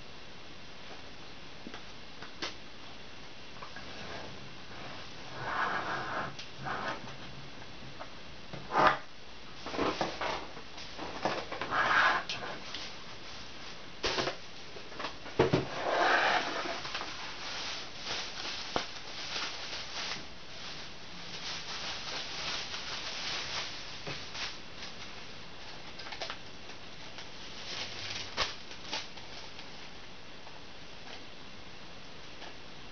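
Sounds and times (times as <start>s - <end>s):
paper and plastic rustling: 9.6s - 11.7s, 16.4s - 29.9s.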